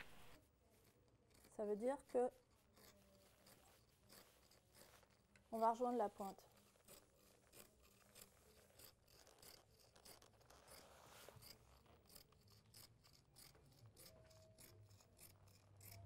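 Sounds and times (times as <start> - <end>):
scissors snipping fabric: 0.0 - 16.0.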